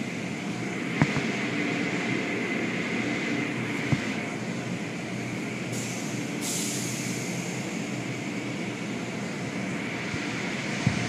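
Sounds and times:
car wash machinery rumbling: 0.0 - 11.0
hiss: 5.7 - 7.9.

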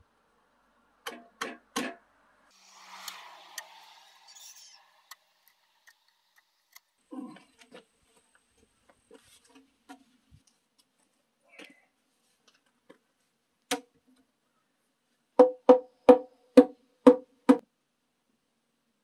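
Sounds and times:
wooden mallet knocking timber post: 15.4 - 17.2.

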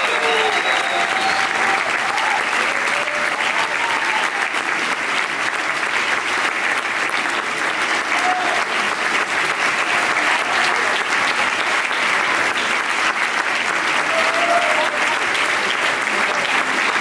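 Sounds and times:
audience applauding: 0.0 - 17.0.

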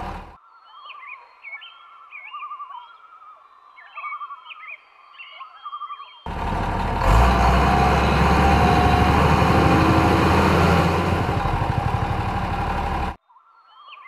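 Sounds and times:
vehicle engine chugging: 0.0 - 0.4, 6.3 - 13.2.

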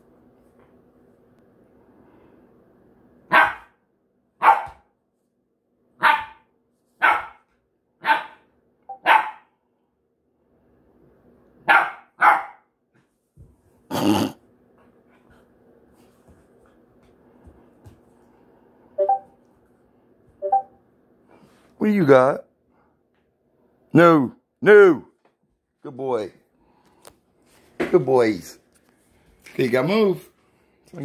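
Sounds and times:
puppy barking: 3.3 - 3.8, 4.4 - 4.9, 6.0 - 9.5, 11.6 - 12.7.

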